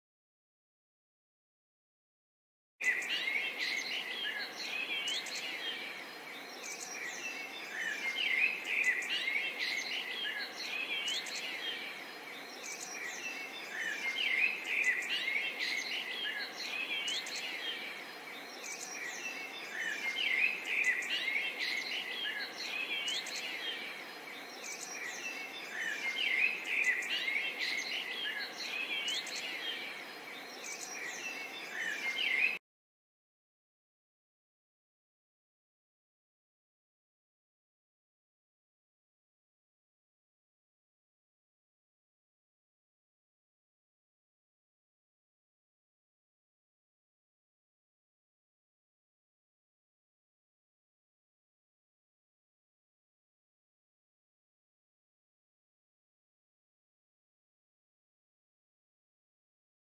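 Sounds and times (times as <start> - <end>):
small birds chirping: 2.8 - 32.6.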